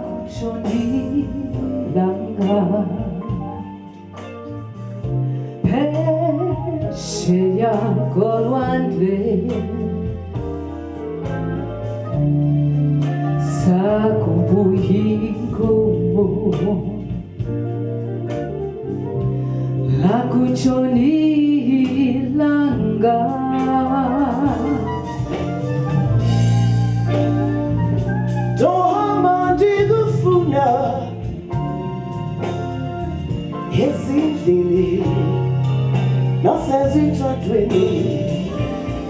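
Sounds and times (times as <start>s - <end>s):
electric guitar: 0.0s - 39.0s
low accompaniment: 0.0s - 39.0s
woman singing into microphone: 0.3s - 3.3s, 5.6s - 10.0s, 19.9s - 25.3s.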